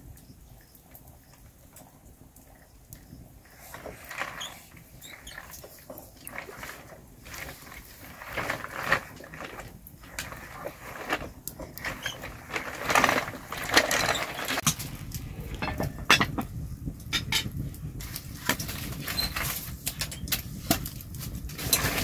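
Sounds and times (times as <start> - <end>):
wood fire crackling: 0.0 - 22.0
firewood sticks knocking: 10.2 - 17.6.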